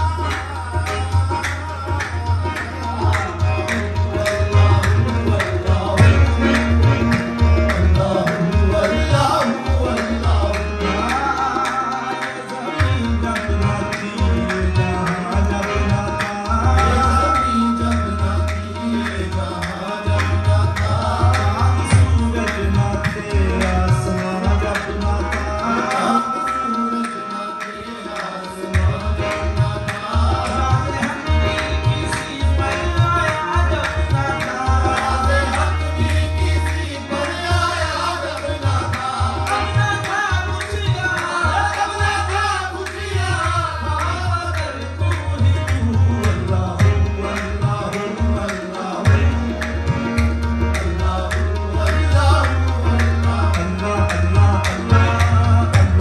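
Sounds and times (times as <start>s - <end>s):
tabla drumming: 0.0s - 56.0s
melodic instrument line: 16.3s - 20.2s, 21.9s - 38.3s.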